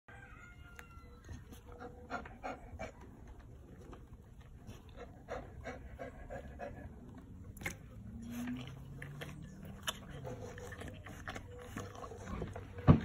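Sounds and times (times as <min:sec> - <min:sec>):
dog panting: 0:01.6 - 0:03.1, 0:04.3 - 0:07.4, 0:08.3 - 0:13.0.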